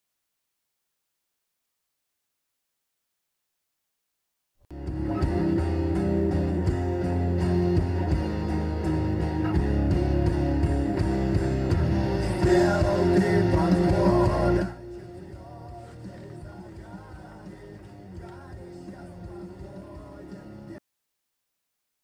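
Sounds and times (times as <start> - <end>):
rock music with guitar: 4.7 - 20.8
person singing: 10.9 - 20.8.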